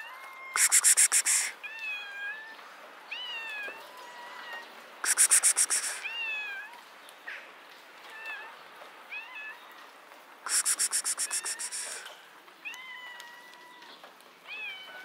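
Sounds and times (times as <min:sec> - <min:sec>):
cat meowing: 0:00.1 - 0:06.8, 0:10.5 - 0:15.0
person hissing calls: 0:00.6 - 0:01.6, 0:05.0 - 0:06.0, 0:10.5 - 0:12.1.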